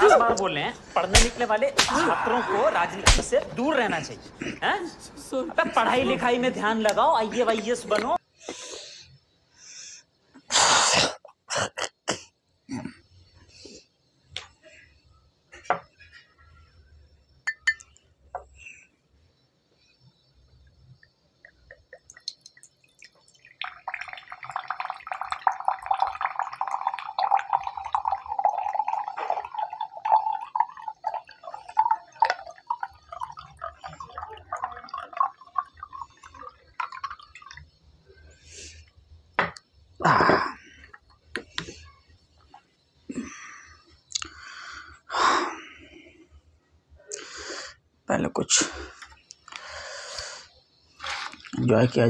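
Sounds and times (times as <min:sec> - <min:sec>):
liquid glugging into a glass: 0:21.5 - 0:37.8.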